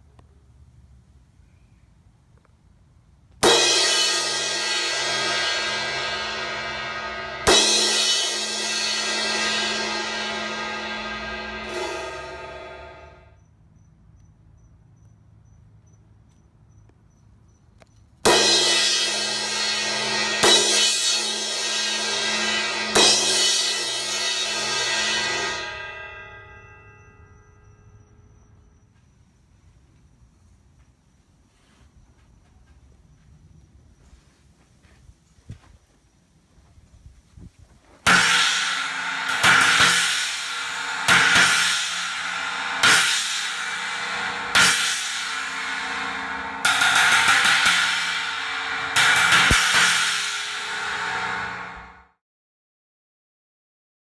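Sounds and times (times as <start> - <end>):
crash cymbal struck and ringing: 3.4 - 13.4, 18.3 - 28.8, 38.1 - 52.0.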